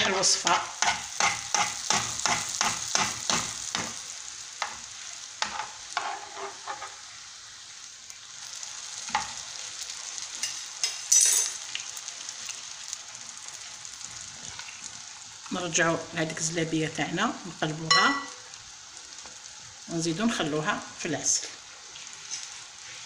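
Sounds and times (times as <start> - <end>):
batter sizzling in hot oil: 0.0 - 23.0
cutlery clicking on pan: 0.8 - 4.0, 5.4 - 7.0, 10.4 - 11.9
metal spoon stroking through oil: 5.4 - 7.2
oil crackling: 8.0 - 15.8.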